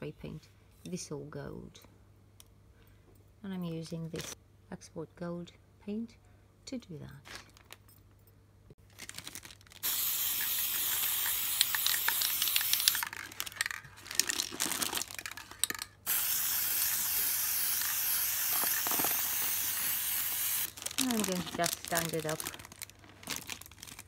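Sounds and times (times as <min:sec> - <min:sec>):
spray paint can hissing: 0:09.8 - 0:13.1, 0:16.1 - 0:20.7.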